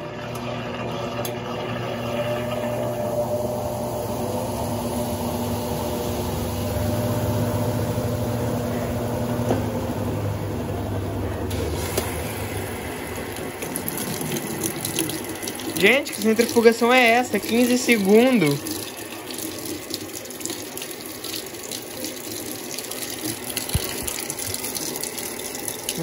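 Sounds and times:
low motor whine: 0:00.0 - 0:19.2
washing machine spinning hum: 0:00.0 - 0:26.0
water hissing in: 0:11.5 - 0:20.4.

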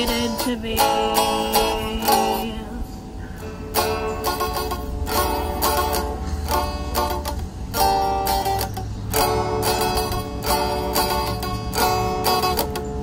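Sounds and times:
electric guitar strumming chords: 0:00.0 - 0:13.0.

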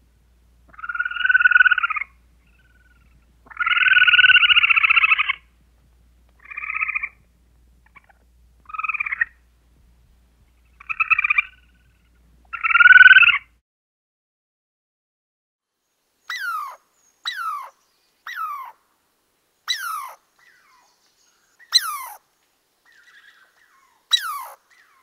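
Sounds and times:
animal trilling calls: 0:00.7 - 0:05.4, 0:06.4 - 0:07.2, 0:07.8 - 0:09.4, 0:10.8 - 0:13.5, 0:16.3 - 0:18.8, 0:19.7 - 0:20.9, 0:21.7 - 0:22.2, 0:22.9 - 0:25.0.

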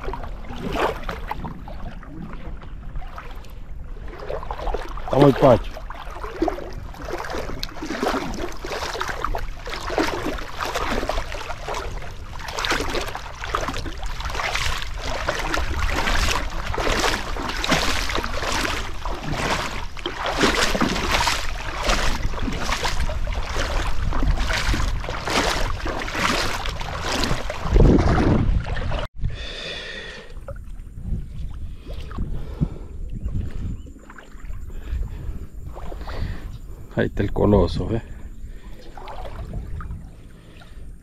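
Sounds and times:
water splashing strokes: 0:00.0 - 0:29.1, 0:30.0 - 0:36.9, 0:37.9 - 0:40.8
low rumble: 0:38.0 - 0:41.0.

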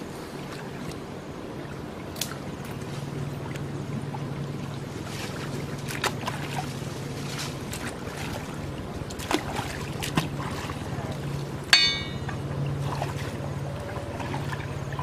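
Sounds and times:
steady low hum: 0:00.0 - 0:15.0
sharp ringing knock: 0:11.8 - 0:12.4.

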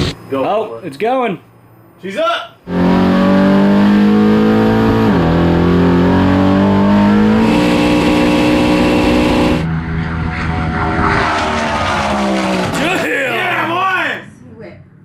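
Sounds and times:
car engine at full throttle: 0:02.6 - 0:13.1.

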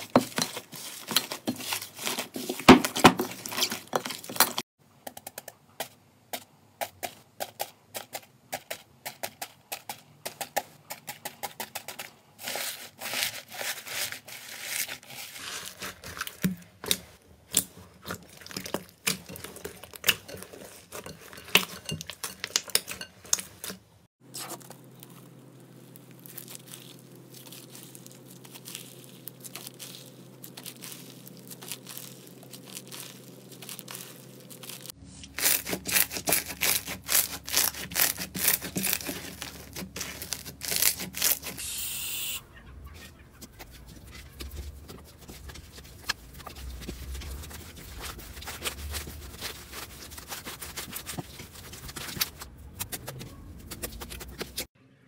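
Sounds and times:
soft slime squelch: 0:11.8 - 0:41.3, 0:42.5 - 0:54.7
slime crackling and popping: 0:24.4 - 0:41.6.

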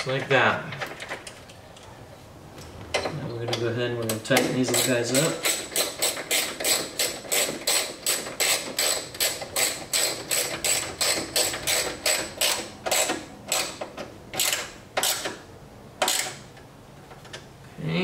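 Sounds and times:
ratchet wrench clicking: 0:04.7 - 0:15.4.

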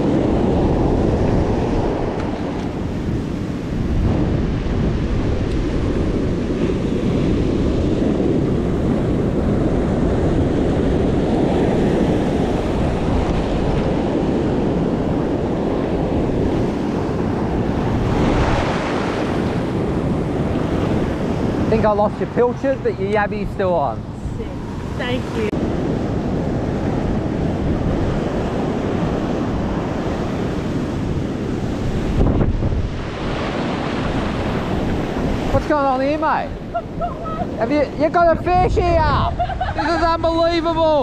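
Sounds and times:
ocean surf washing onto beach: 0:00.0 - 0:41.0
wind buffeting microphone: 0:00.0 - 0:41.0.

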